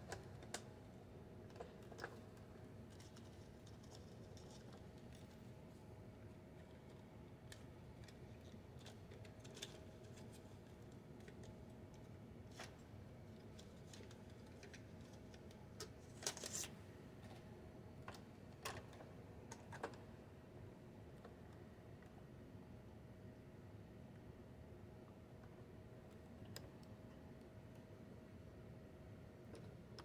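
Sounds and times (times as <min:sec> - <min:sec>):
faint steady hum: 0:00.0 - 0:30.0.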